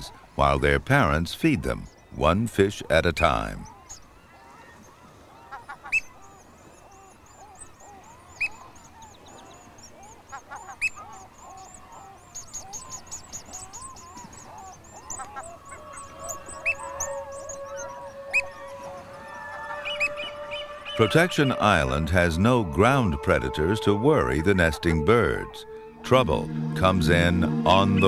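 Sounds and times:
lower chattering seabird calls: 0.0s - 28.0s
sharp bird calls: 1.6s - 22.2s
held low bird call: 3.3s - 28.0s
high thin peeping bird calls: 3.4s - 21.6s.

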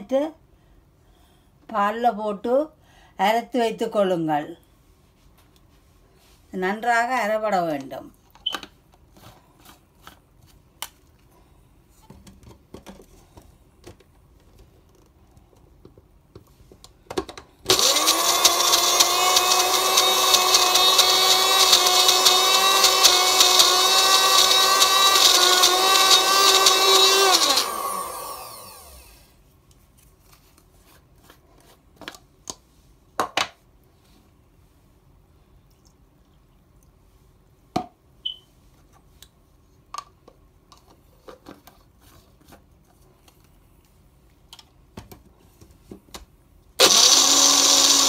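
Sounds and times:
grinder motor whining: 17.7s - 29.2s, 46.8s - 48.0s.

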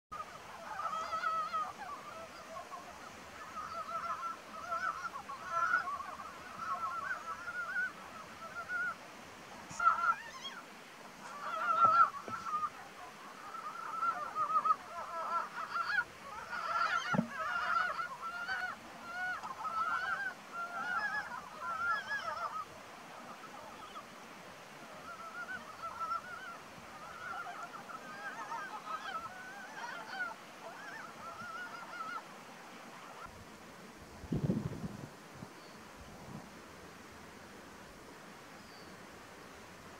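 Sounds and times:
frogs croaking in chorus: 0.2s - 9.0s, 11.2s - 22.6s, 25.0s - 32.2s.

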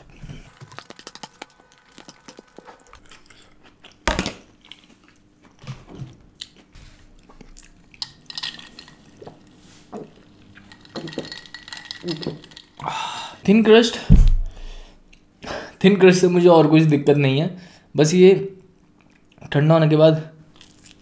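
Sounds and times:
chewing noodles: 0.0s - 4.0s, 20.5s - 21.0s.

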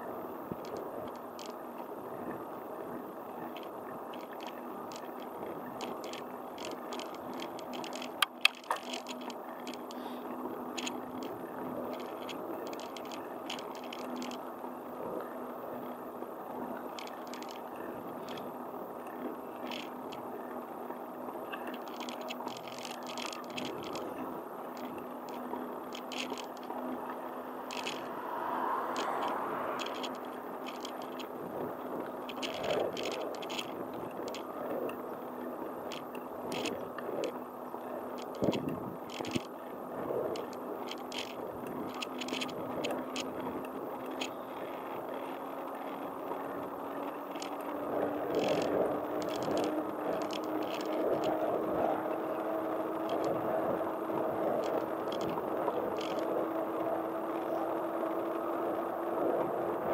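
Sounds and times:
wheels humming on asphalt: 0.0s - 59.9s
frame rattling and clicking: 3.5s - 10.0s, 10.8s - 14.4s, 16.9s - 18.4s, 19.6s - 20.2s, 21.6s - 24.1s, 24.8s - 27.0s, 27.6s - 28.1s, 28.9s - 37.3s, 38.0s - 39.5s, 40.2s - 46.0s, 47.0s - 53.8s, 54.4s - 56.5s
sharp clicks: 3.5s - 10.0s, 21.5s - 31.3s, 32.0s - 39.5s, 40.2s - 58.3s.

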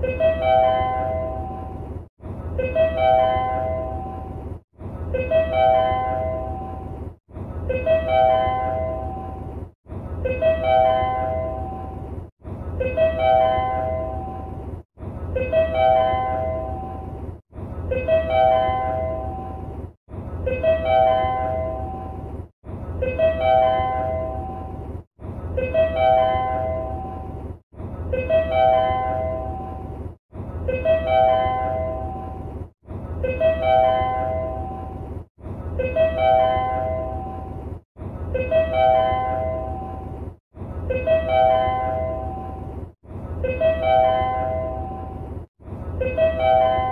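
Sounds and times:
low train rumble: 0.0s - 46.9s
bell-like chime: 46.0s - 46.9s.

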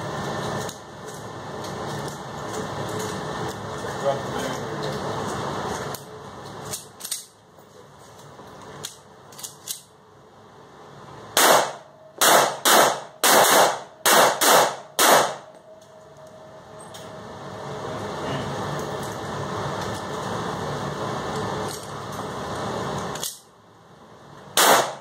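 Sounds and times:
gun handling clicks: 8.8s - 9.9s
pistol shots echoing indoors: 11.4s - 15.6s, 24.6s - 25.0s.

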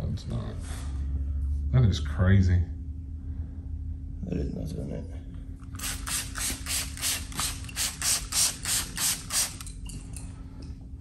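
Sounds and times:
spray bottle squirting: 5.7s - 9.8s.

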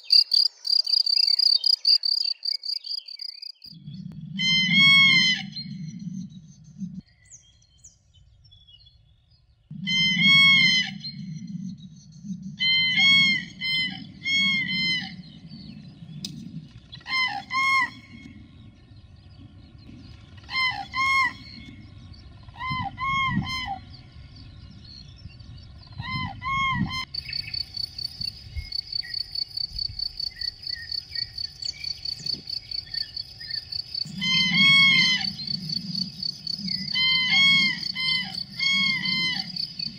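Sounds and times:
insect high-pitched chirping: 0.0s - 3.8s, 27.1s - 39.9s
cranes trumpeting calls: 4.3s - 5.9s, 9.7s - 11.4s, 12.6s - 15.4s, 17.0s - 18.4s, 20.2s - 24.2s, 30.2s - 39.9s.

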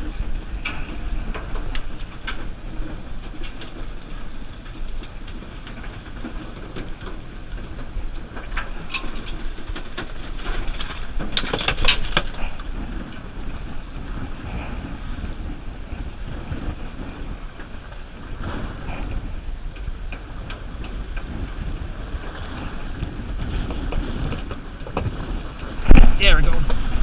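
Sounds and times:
boat and water noise: 0.0s - 27.0s
wind buffeting microphone: 0.0s - 27.0s
gear clicks and knocks: 0.3s - 13.5s.

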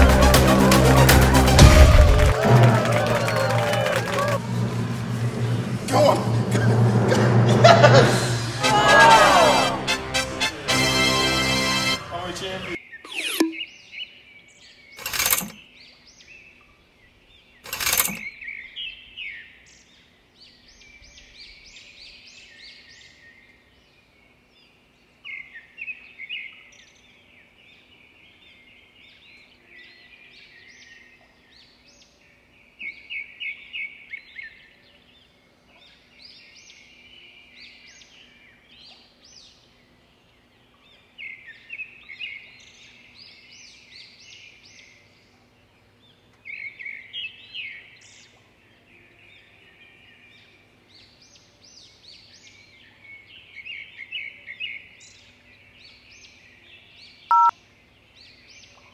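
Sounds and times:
small bird chirping: 12.9s - 14.0s, 57.3s - 57.5s
sharp click: 15.0s - 15.6s, 17.7s - 18.3s.

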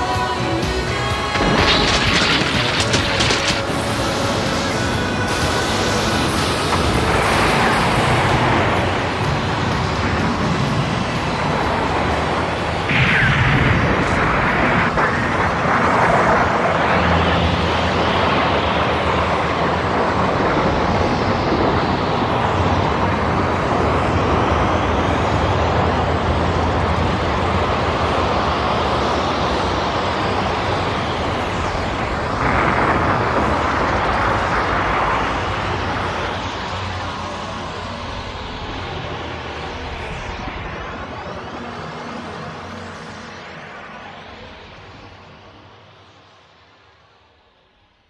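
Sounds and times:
explosion roar: 1.2s - 25.0s, 29.5s - 42.8s.

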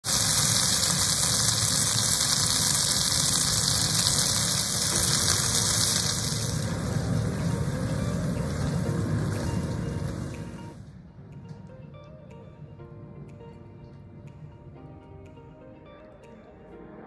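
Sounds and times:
chicken sizzling in a frying pan: 0.0s - 10.8s.

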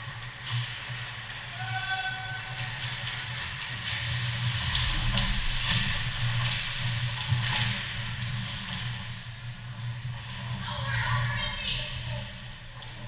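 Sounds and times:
low arena hum: 0.0s - 13.0s
skates scraping ice: 0.0s - 13.0s.

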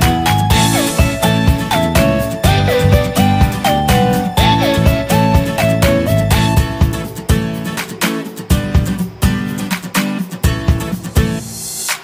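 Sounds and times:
bass line: 0.0s - 7.2s
gliding melody: 0.0s - 7.3s
steady beat: 0.0s - 12.0s.

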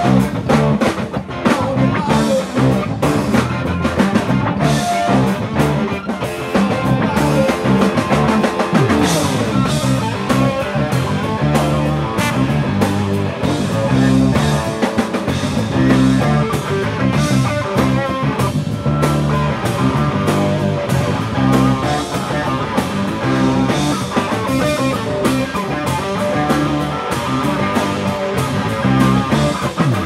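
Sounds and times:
funk band playing: 0.0s - 30.0s
trombone: 11.7s - 13.8s.

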